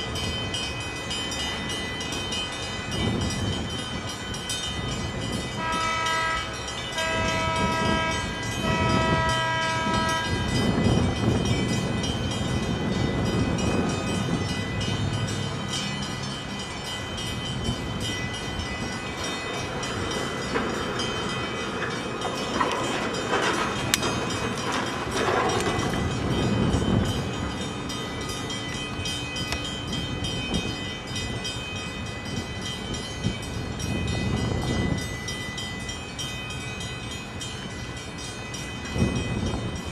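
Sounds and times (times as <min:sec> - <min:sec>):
multi-tone horn blasts: 0:05.6 - 0:10.5.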